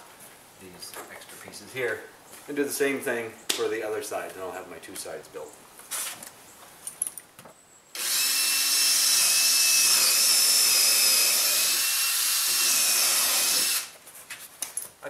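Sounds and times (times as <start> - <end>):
power drill whining: 8.0 - 14.0.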